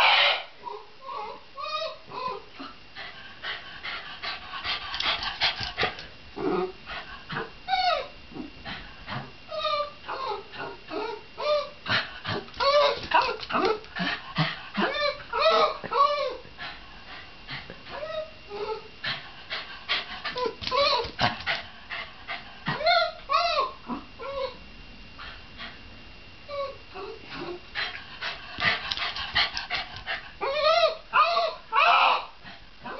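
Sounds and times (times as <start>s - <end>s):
dog yipping and whining: 0.0s - 2.7s, 7.7s - 8.5s, 9.5s - 11.8s, 12.6s - 13.8s, 14.8s - 16.4s, 20.4s - 21.3s, 22.7s - 24.6s, 30.4s - 32.3s.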